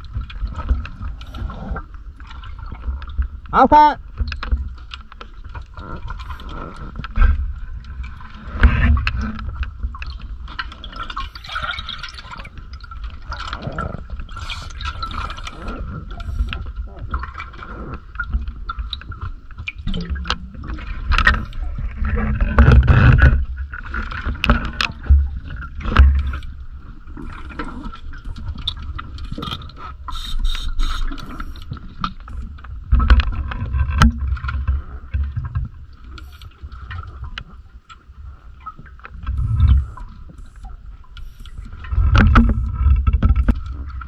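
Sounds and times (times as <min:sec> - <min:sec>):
gear clicks and knocks: 0:41.9 - 0:44.0.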